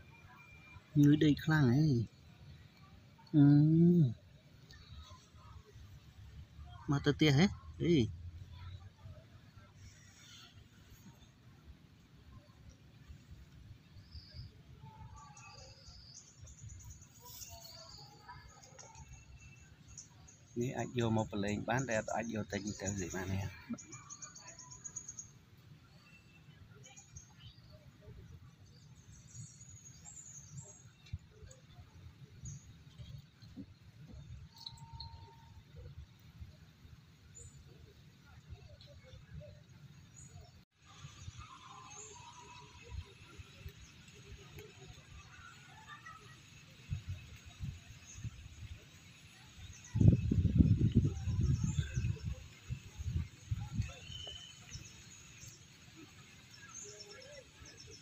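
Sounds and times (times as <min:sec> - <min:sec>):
small birds chirping: 0:00.2 - 0:58.0
wind buffeting microphone: 0:49.8 - 0:54.2.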